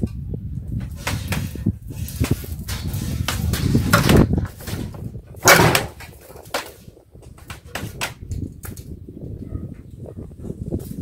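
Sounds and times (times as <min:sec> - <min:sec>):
cord scraping rush: 0:00.8 - 0:08.9.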